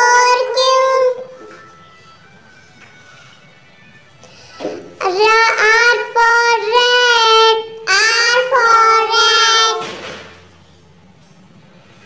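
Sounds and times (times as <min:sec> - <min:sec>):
child singing: 0:00.0 - 0:01.4, 0:05.0 - 0:10.0.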